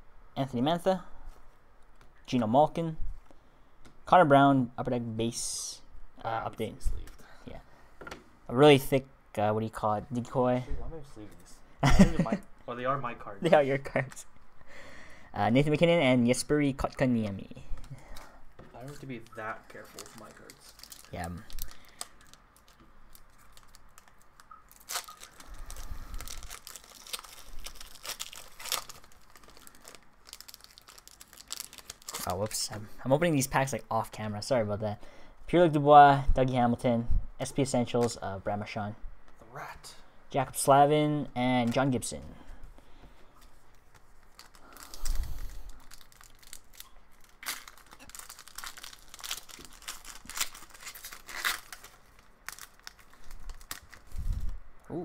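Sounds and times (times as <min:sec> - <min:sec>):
wrappers crinkling: 0:16.8 - 0:32.7, 0:43.4 - 0:54.6
card packs tearing open: 0:18.8 - 0:32.5, 0:44.3 - 0:54.1.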